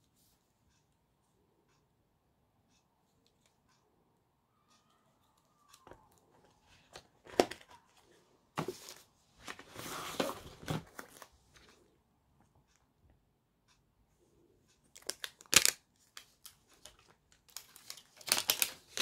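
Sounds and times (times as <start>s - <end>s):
packaging rustling and crinkling: 16.4s - 19.0s.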